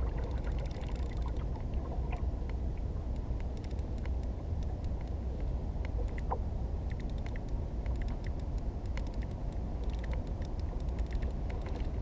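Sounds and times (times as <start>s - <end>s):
wind rumbling on the microphone: 0.0s - 12.0s
fishing reel clicking: 0.2s - 1.4s, 3.6s - 4.2s, 6.9s - 12.0s.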